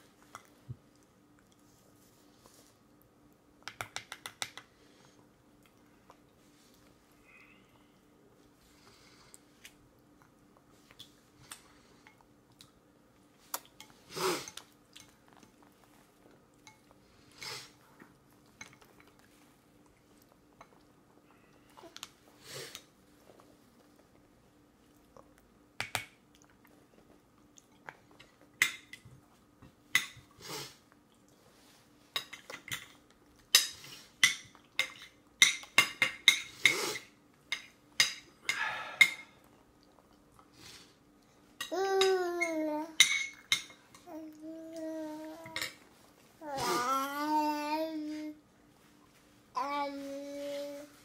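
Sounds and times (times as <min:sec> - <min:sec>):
soft chewing: 0:00.0 - 0:03.7, 0:04.4 - 0:35.7, 0:39.0 - 0:41.7, 0:43.3 - 0:46.4.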